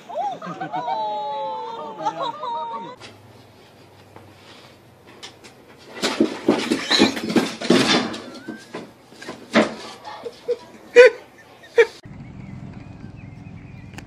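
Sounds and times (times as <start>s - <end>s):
dog bumping down wooden stairs: 6.0s - 9.8s
dog high cries: 8.1s - 8.8s.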